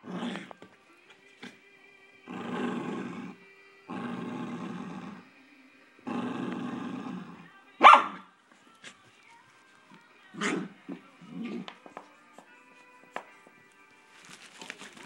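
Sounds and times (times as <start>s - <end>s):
dog growling: 0.0s - 0.6s, 2.2s - 5.3s, 6.0s - 7.5s, 10.4s - 11.7s.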